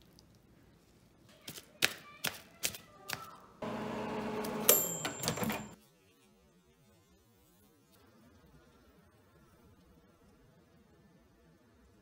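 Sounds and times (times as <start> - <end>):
high thin tone: 3.6 - 5.8
microwave oven humming: 3.6 - 5.8.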